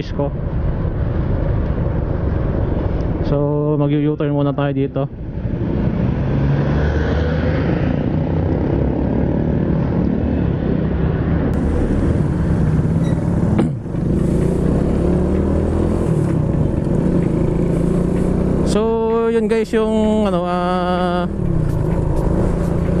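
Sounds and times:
wind rushing over microphone: 0.0 - 18.7
motorcycle engine: 11.6 - 23.0.

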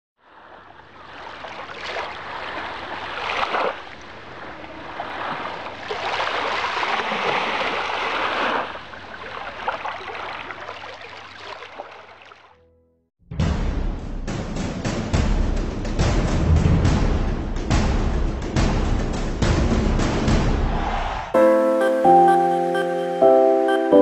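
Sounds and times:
waves washing onto sandy beach: 0.2 - 11.6.

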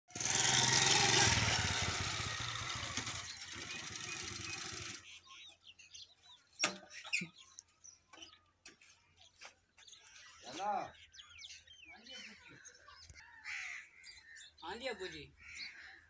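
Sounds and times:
motorcycle engine running: 0.1 - 5.2
faint bird chirps: 3.2 - 16.0.

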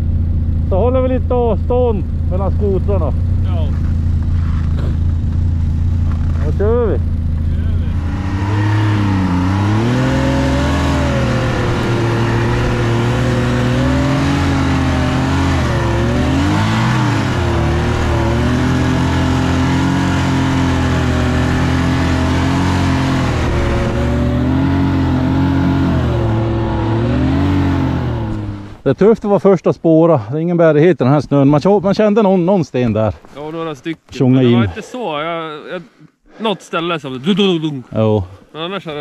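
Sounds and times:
snowmobile engine running under load: 0.0 - 28.8.

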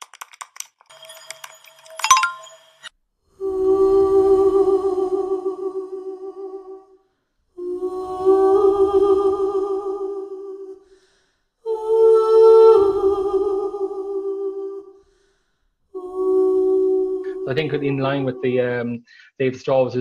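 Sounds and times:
person humming long notes: 3.4 - 6.8, 7.6 - 10.8, 16.0 - 19.0.

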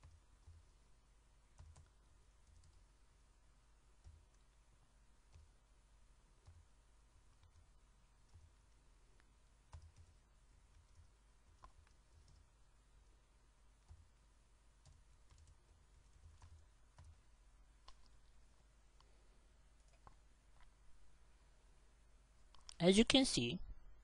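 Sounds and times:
low steady hum: 0.0 - 24.0
keyboard keystrokes: 9.7 - 10.2.

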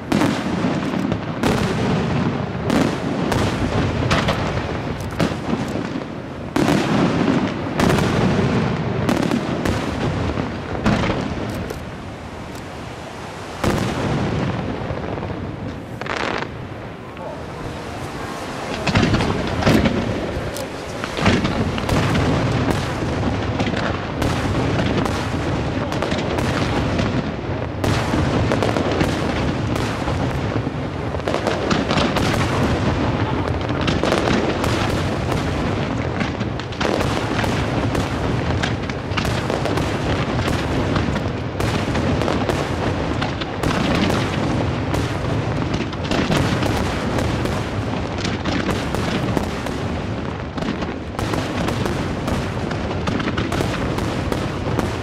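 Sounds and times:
firework shells bursting: 0.1 - 30.3.

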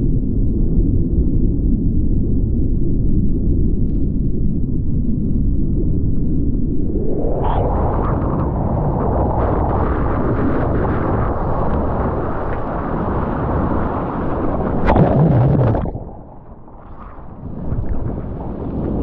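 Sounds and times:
wave breaking and whitewater rushing: 12.7 - 19.0
water splash: 14.5 - 19.0.

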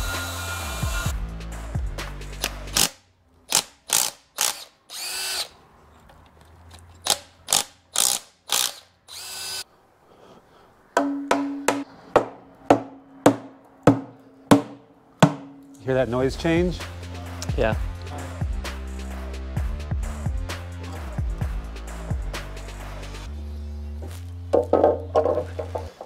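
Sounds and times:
power tool running: 0.0 - 1.1
ratchet wrench clicking: 2.4 - 5.5, 7.0 - 9.6.

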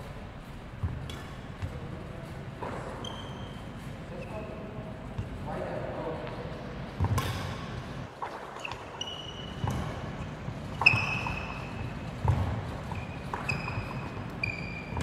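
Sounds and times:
shoes squeaking on wooden floor: 0.0 - 4.5, 8.2 - 15.0
badminton racket hitting shuttlecock: 0.8 - 1.7.

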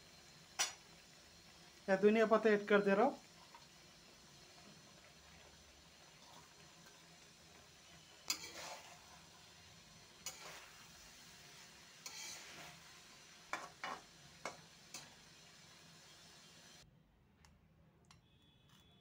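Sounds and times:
faint sizzle of hot pan: 0.0 - 16.8
spoon scraping a metal pan: 8.2 - 9.0, 10.2 - 10.8, 12.0 - 12.8, 13.5 - 15.1.

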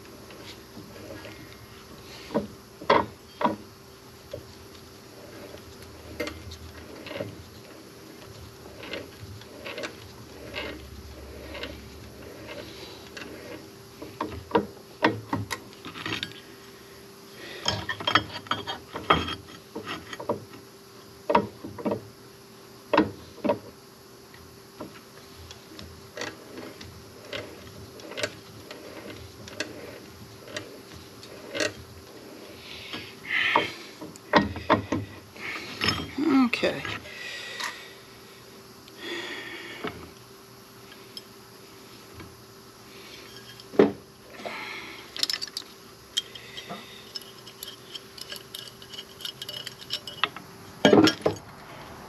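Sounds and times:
clicks and knocks of tools: 45.2 - 51.5.

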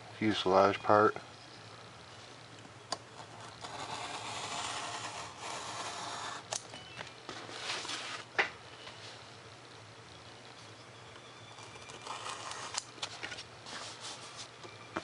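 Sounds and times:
knife scraping through paper: 3.2 - 6.4, 11.9 - 14.5.

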